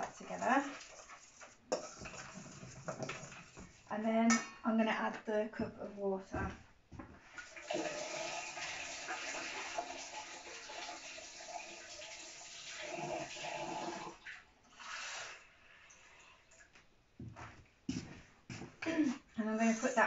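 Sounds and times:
tap water filling a cup: 0:07.4 - 0:15.3.

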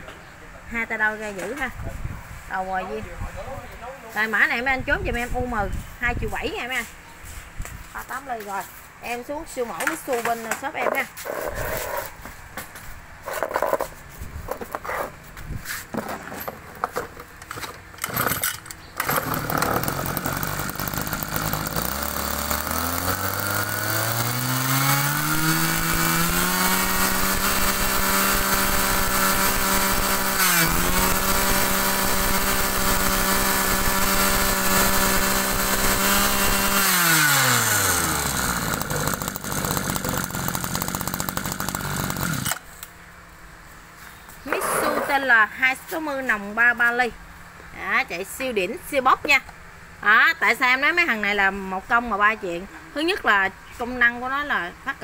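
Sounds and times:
brush cutter engine: 0:18.0 - 0:42.9.

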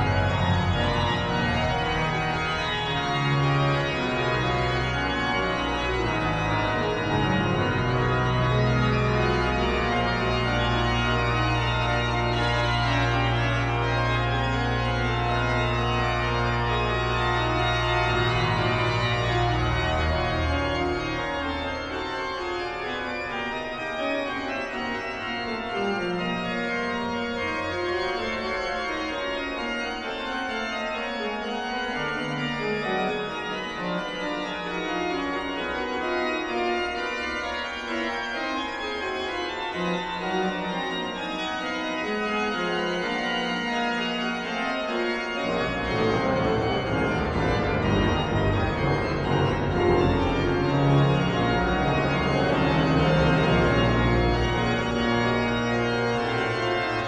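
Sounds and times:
deep sustained organ bass: 0:00.0 - 0:23.6, 0:45.2 - 0:57.0
pipe organ chords: 0:00.0 - 0:57.0.

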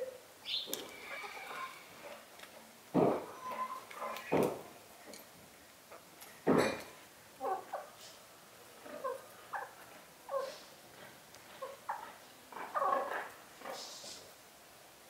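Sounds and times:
chickens clucking: 0:00.5 - 0:02.3, 0:07.4 - 0:14.2.

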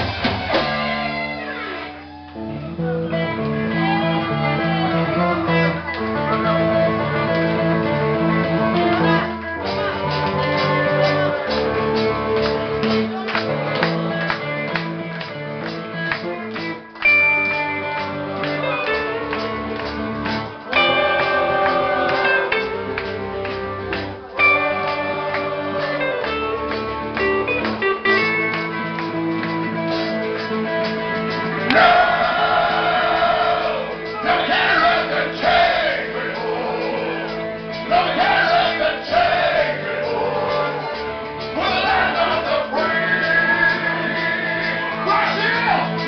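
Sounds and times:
bass and drums: 0:00.0 - 0:46.0
electric guitars: 0:00.0 - 0:46.0
person singing: 0:20.6 - 0:23.2, 0:31.7 - 0:46.0.

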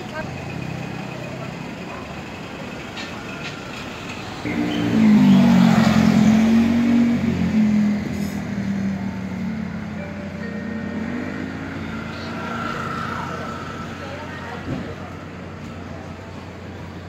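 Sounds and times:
street traffic: 0:00.0 - 0:17.0
vehicle passing close by: 0:04.4 - 0:09.8.

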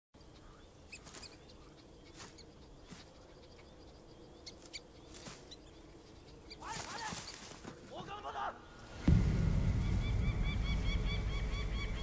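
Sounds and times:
rustling in dry grass: 0:00.8 - 0:08.1
low steady hum: 0:08.7 - 0:12.0.

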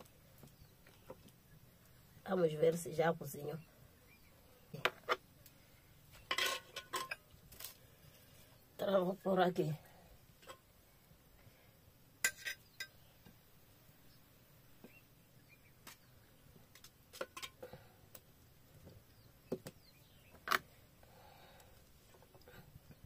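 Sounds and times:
cutlery clinking on metal pot: 0:06.3 - 0:07.3, 0:12.2 - 0:13.0, 0:17.2 - 0:17.6.

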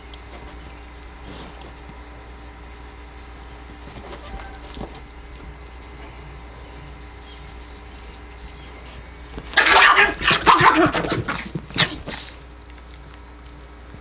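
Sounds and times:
puppy growling and yelping: 0:09.4 - 0:12.4.

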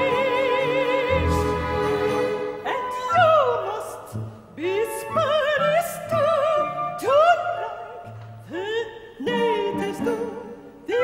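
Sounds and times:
instrumental accompaniment: 0:00.0 - 0:03.4
operatic singing: 0:00.0 - 0:11.0.

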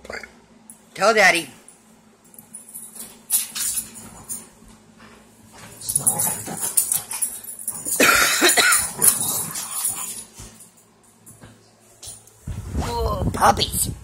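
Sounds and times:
puppy growling in play: 0:05.8 - 0:08.2, 0:08.8 - 0:10.3.

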